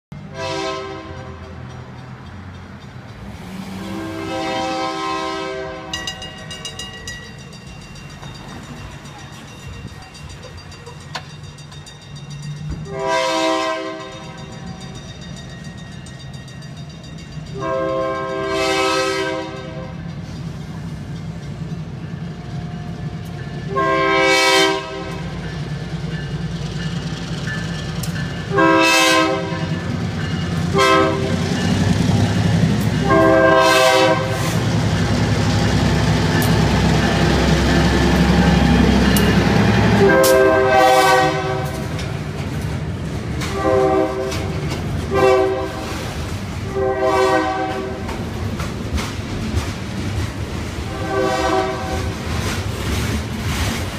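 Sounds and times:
train rumbling past: 0.1 - 53.9
train horn blasts: 0.2 - 1.6, 3.7 - 6.2, 12.8 - 14.4, 17.5 - 20.0, 23.7 - 25.4, 28.5 - 29.8, 30.7 - 31.5, 33.0 - 34.6, 39.8 - 42.0, 43.4 - 46.0, 46.6 - 48.1, 50.8 - 52.2.

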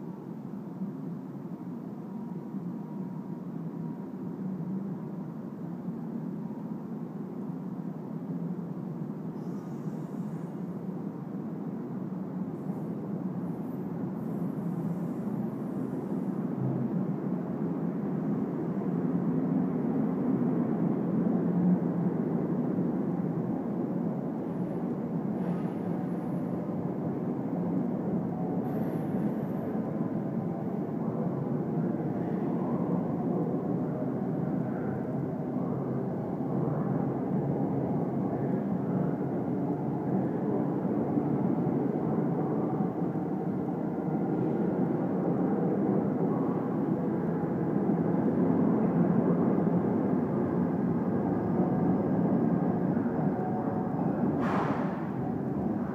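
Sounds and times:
train wheels rumbling on rail: 19.7 - 55.9.

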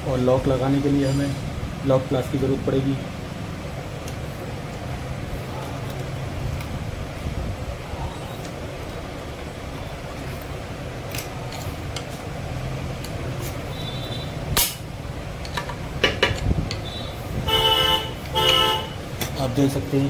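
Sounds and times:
traffic hum: 0.0 - 20.0
vehicle horn toot: 13.7 - 14.4, 16.8 - 19.0.

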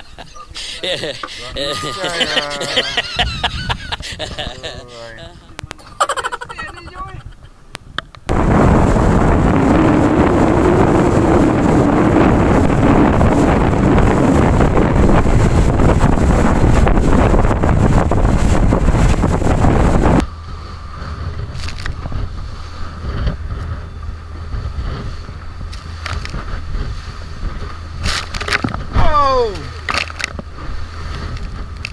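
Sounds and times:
boat engine: 0.0 - 7.2, 8.3 - 31.9
waves: 0.0 - 7.6, 8.3 - 31.9
wind buffeting microphone: 0.0 - 31.9
hull running through sea: 8.3 - 31.9.

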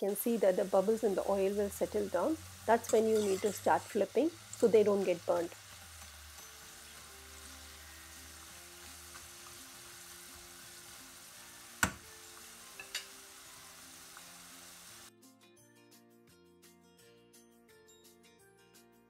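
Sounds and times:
food sizzling in hot oil: 0.0 - 15.1.

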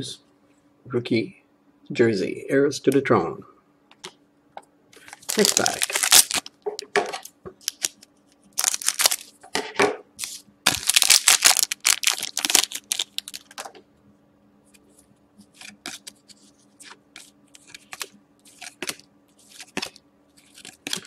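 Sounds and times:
cards rustling: 5.0 - 6.5, 7.6 - 9.4, 10.2 - 13.7, 15.4 - 21.0
foil wrapper crinkling: 5.0 - 6.6, 7.6 - 9.4, 10.2 - 13.7, 17.6 - 21.0
scissors cutting foil pack: 5.2 - 6.4, 10.7 - 13.5.

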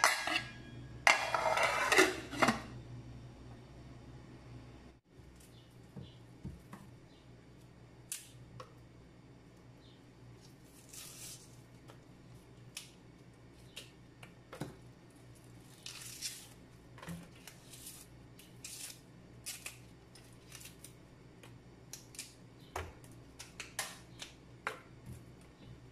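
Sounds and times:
faint low hum: 0.0 - 25.9
onion layers tearing: 10.4 - 11.6, 17.4 - 21.0.

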